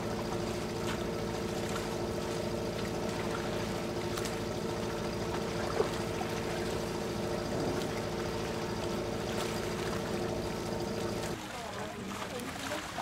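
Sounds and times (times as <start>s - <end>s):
boat engine running at low revs: 0.0s - 13.0s
water washing: 0.0s - 13.0s.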